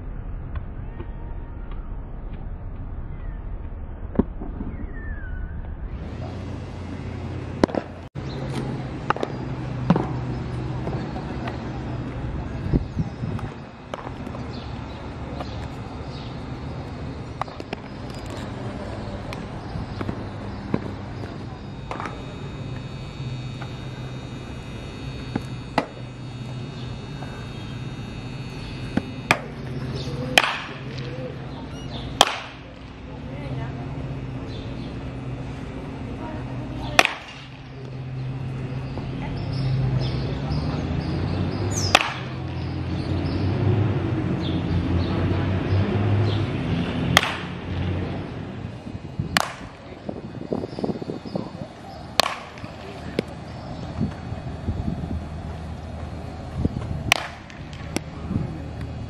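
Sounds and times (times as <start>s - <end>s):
steady low hum: 0.0s - 59.0s
baseball bat hitting balls: 6.0s - 12.7s, 13.3s - 39.0s, 41.7s - 43.2s, 46.5s - 54.4s, 55.1s - 59.0s.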